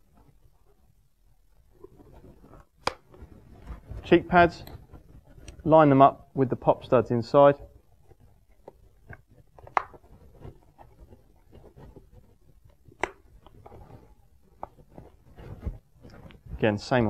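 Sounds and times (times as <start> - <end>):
pop studs snapping: 2.7 - 3.2
fabric pad rustling and scraping: 13.5 - 17.0.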